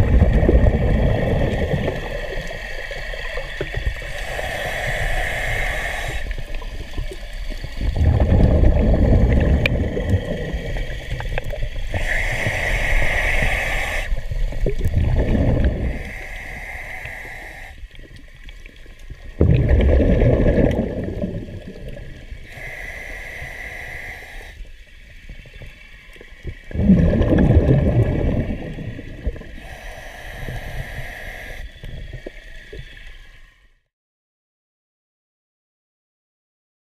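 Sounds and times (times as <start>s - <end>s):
exhaled bubbles gurgling: 0.0s - 33.2s
regulator inhalation hiss: 1.0s - 8.0s, 9.4s - 14.8s, 15.6s - 18.5s, 21.4s - 26.6s, 28.5s - 33.6s.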